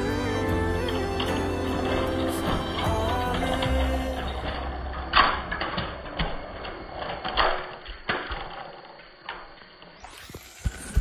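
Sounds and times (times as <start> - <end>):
toy train motor whirring: 0.0 - 4.5, 8.1 - 11.0
toy trains hitting the floor: 2.2 - 11.0.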